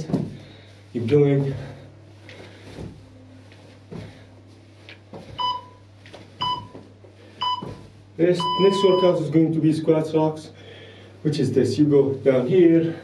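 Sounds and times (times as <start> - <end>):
feet thudding on hard floor: 0.0 - 0.7, 1.4 - 8.1
short electronic beeps: 5.4 - 5.8, 6.4 - 6.7, 7.4 - 7.8, 8.4 - 9.1.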